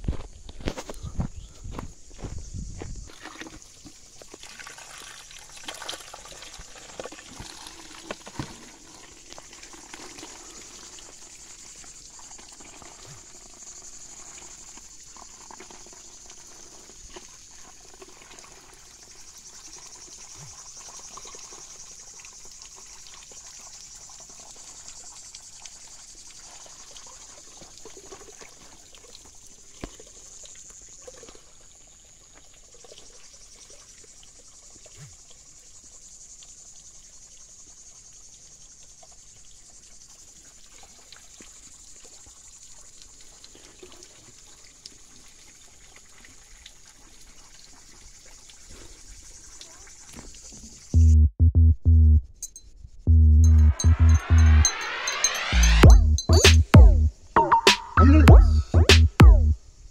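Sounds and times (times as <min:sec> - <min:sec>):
crickets chirping: 0:00.0 - 0:43.6, 0:48.2 - 0:51.0, 0:52.2 - 0:56.4
water running into a container: 0:03.1 - 0:33.8.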